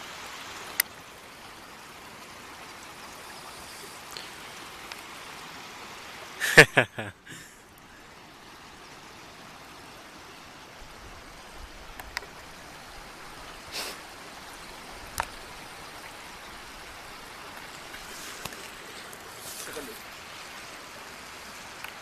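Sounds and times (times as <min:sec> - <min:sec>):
running water rushing: 0:00.0 - 0:22.0
faint clicks: 0:11.9 - 0:12.3, 0:15.1 - 0:15.4.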